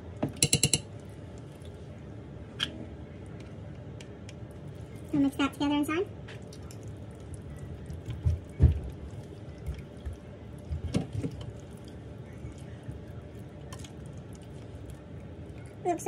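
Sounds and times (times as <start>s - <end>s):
spatula stirring wet filling: 6.3s - 16.0s.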